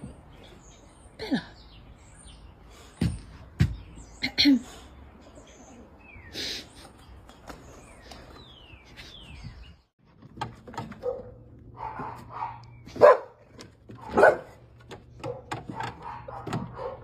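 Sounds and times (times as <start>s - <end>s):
dog barking: 11.0s - 13.4s, 14.0s - 14.6s, 15.2s - 17.0s.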